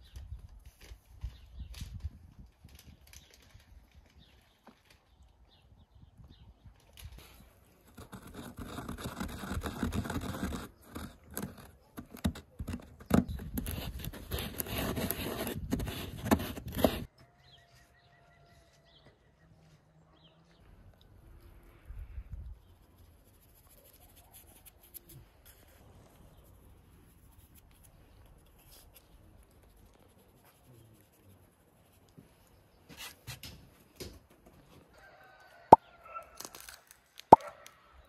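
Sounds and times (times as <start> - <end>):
pestle scraping in mortar: 7.9 - 17.1.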